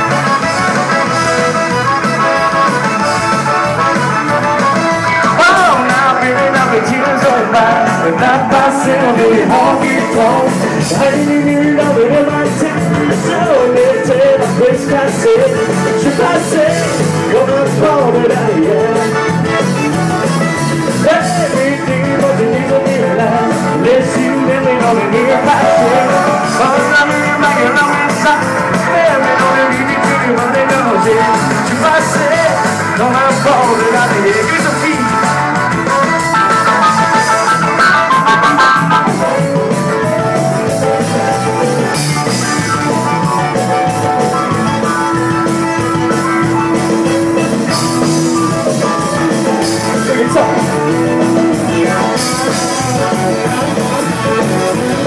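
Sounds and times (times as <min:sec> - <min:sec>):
button accordion: 0:00.0 - 0:11.8, 0:23.2 - 0:55.0
drum kit: 0:00.0 - 0:55.0
electric guitar: 0:00.0 - 0:55.0.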